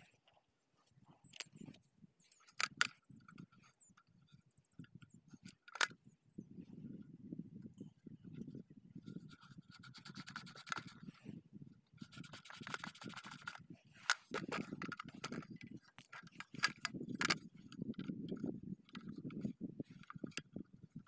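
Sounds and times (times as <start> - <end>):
scratching and scraping on metal: 8.3 - 11.3, 12.0 - 20.6.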